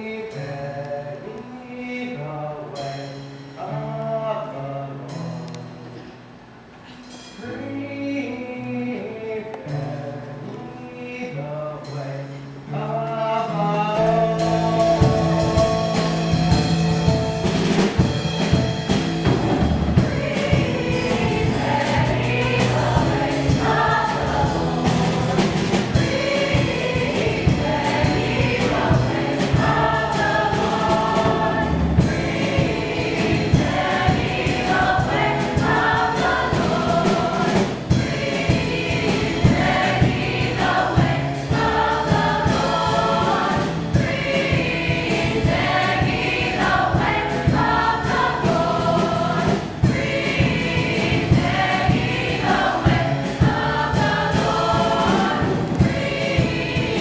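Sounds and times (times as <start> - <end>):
band playing: 12.8 - 57.0
young voices singing: 19.9 - 57.0.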